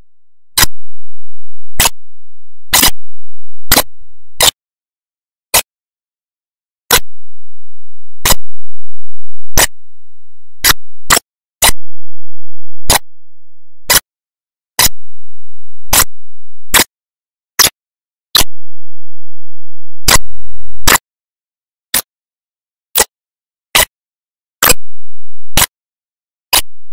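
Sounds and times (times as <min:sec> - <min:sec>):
sharp isolated clicks: 0:01.8 - 0:02.0, 0:08.3 - 0:08.5, 0:09.6 - 0:09.8, 0:14.8 - 0:15.0, 0:15.9 - 0:16.9, 0:20.1 - 0:21.0, 0:24.6 - 0:24.9.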